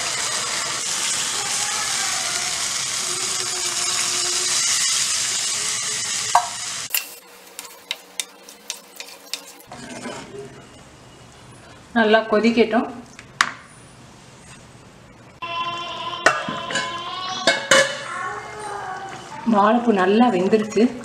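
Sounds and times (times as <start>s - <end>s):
food sizzling in hot oil: 0.0s - 9.7s.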